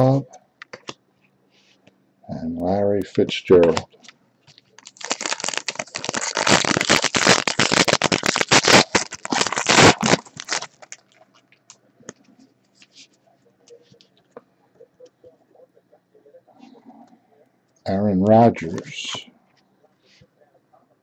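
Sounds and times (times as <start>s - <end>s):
plastic wrapper tearing and crinkling: 4.8s - 11.5s.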